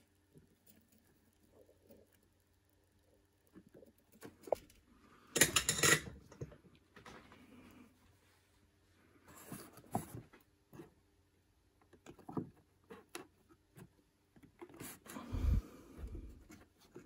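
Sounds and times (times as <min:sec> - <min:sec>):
small clicks and rubbing: 0:11.7 - 0:15.1.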